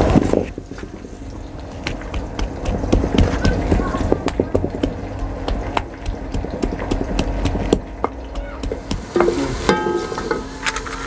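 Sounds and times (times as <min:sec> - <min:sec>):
pestle pounding in stone mortar: 0:01.8 - 0:10.2.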